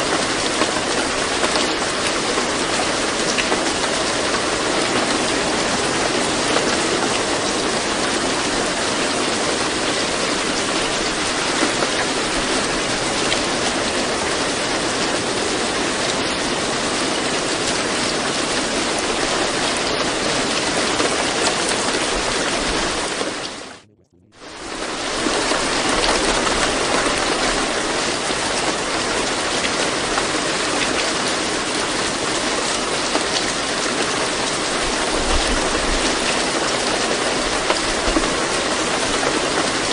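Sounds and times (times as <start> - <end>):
rain falling: 0.0 - 23.8, 24.4 - 39.9.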